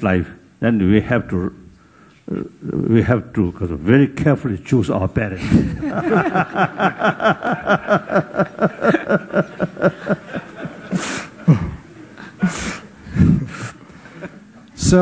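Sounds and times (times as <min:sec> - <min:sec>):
man laughing heartily: 0:05.4 - 0:11.8.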